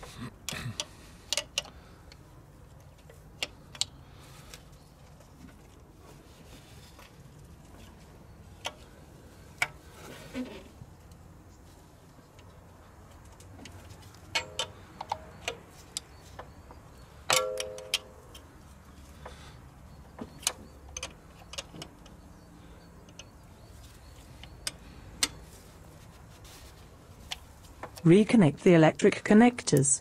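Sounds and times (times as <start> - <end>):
metallic clicks of fuel pipes: 0.0 - 4.7, 6.9 - 9.9, 12.2 - 28.1.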